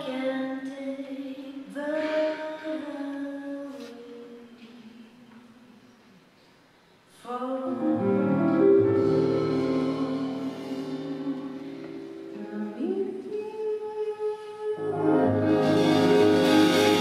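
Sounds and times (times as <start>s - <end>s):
woman singing long notes: 7.2s - 16.2s
piano chord: 7.8s - 13.1s, 14.8s - 17.0s.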